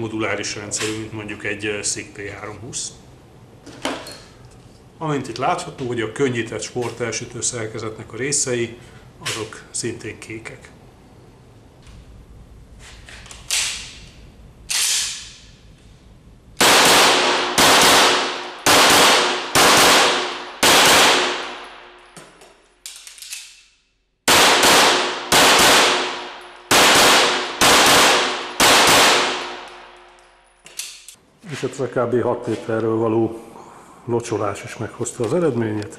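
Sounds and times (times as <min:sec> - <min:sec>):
pistol shots echoing indoors: 0:14.6 - 0:15.6, 0:16.6 - 0:31.1.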